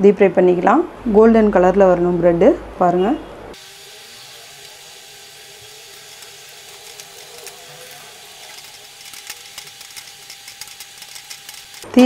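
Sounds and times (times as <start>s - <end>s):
bread deep-frying in oil: 3.6s - 12.0s
crackling pops of frying: 3.6s - 12.0s.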